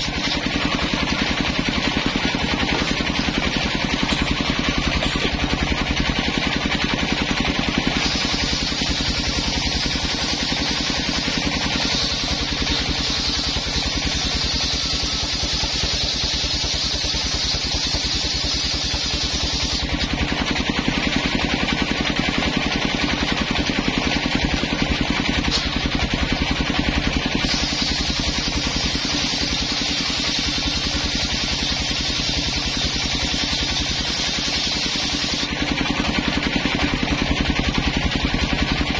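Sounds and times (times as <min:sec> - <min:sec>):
saw blade ripping wood: 0:00.0 - 0:05.6, 0:07.5 - 0:20.2, 0:25.4 - 0:26.0, 0:27.3 - 0:35.6
saw engine running: 0:00.0 - 0:38.9.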